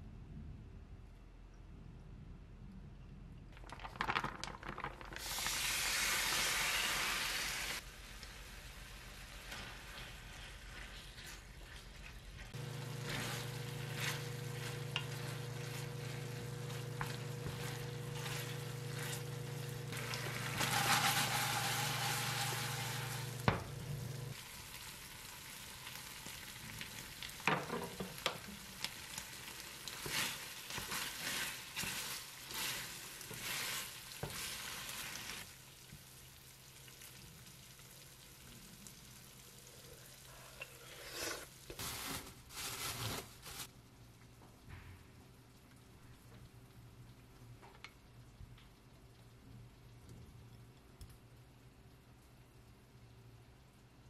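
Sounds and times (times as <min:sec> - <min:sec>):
food sizzling in a frying pan: 0:05.2 - 0:10.4, 0:12.5 - 0:40.3
wooden spatula scraping pan: 0:12.5 - 0:23.7.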